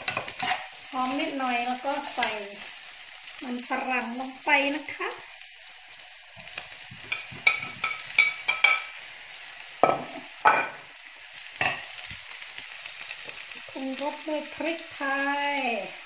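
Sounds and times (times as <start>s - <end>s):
potatoes sizzling in a pan: 0.0s - 16.0s
spatula knocking in a pan: 6.9s - 8.9s.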